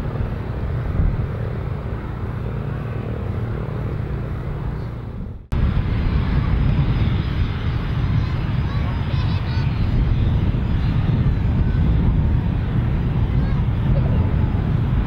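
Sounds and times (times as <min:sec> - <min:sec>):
aircraft engines rumbling: 0:00.0 - 0:15.0.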